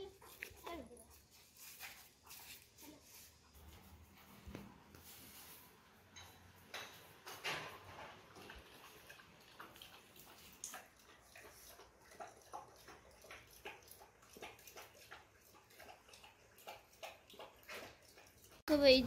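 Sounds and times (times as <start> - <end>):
dog lapping water: 0.0 - 2.7, 7.2 - 18.9.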